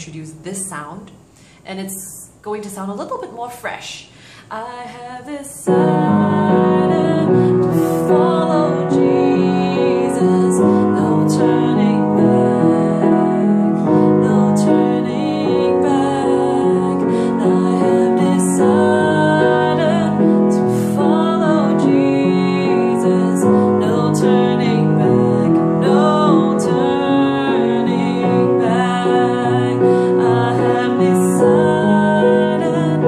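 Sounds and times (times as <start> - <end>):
woman singing softly: 4.5 - 33.0
slow piano chords: 4.9 - 33.0.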